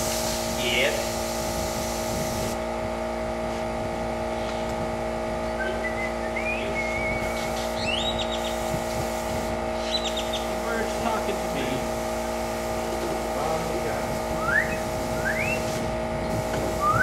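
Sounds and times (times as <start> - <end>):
airbrush spraying hiss: 0.0 - 2.6, 7.2 - 17.0
air compressor humming: 0.0 - 17.0
bird chirps: 5.6 - 8.6, 9.8 - 10.5.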